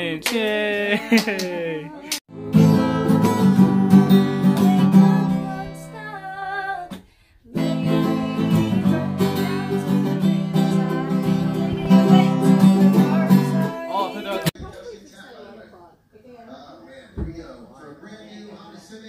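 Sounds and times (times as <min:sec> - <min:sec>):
woman singing: 0:01.1 - 0:14.6
acoustic guitar strumming chords: 0:02.3 - 0:06.0, 0:07.6 - 0:14.5.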